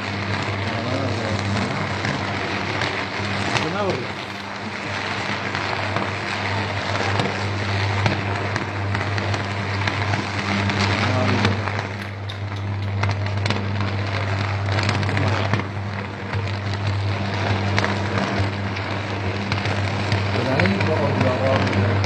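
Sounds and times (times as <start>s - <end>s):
electrical arc buzzing and crackling: 0.0s - 22.0s.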